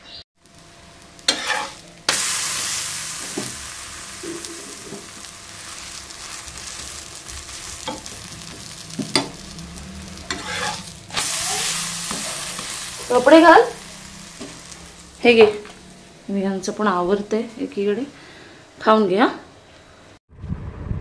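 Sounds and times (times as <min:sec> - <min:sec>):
flatbread sizzling on a griddle: 0:00.4 - 0:16.7.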